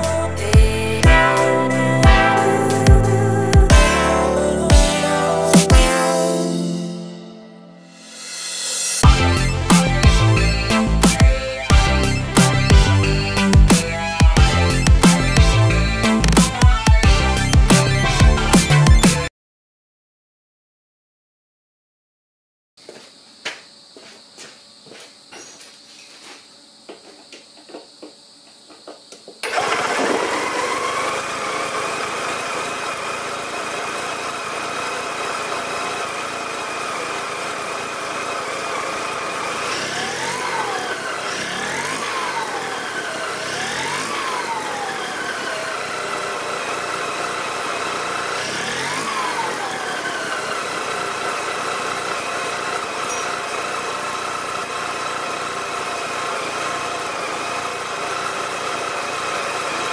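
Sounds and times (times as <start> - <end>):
engine throttle blips: 29.4 - 59.9
rotary engine running: 29.4 - 59.9.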